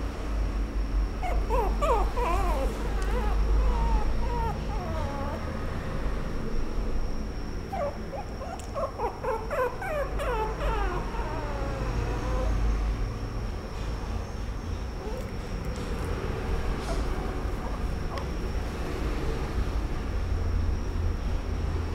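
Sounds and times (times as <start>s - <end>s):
steady low hum: 0.0s - 21.9s
puppy whimpering: 1.2s - 5.7s, 7.7s - 12.8s, 15.0s - 18.6s.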